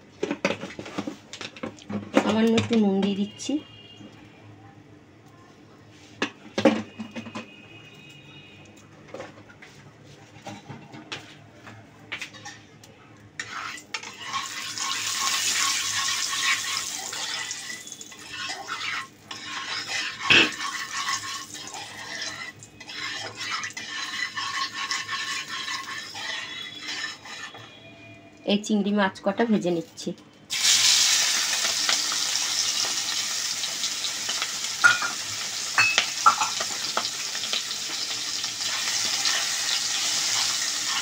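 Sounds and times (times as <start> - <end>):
hot oil sizzling: 13.4 - 27.6, 30.5 - 41.0
spatula scraping in iron pan: 13.4 - 27.8.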